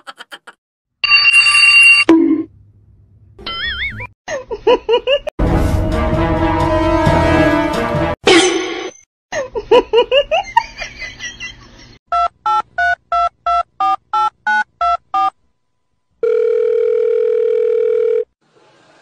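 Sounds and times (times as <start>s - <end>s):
steady phone line tone: 16.2s - 18.3s.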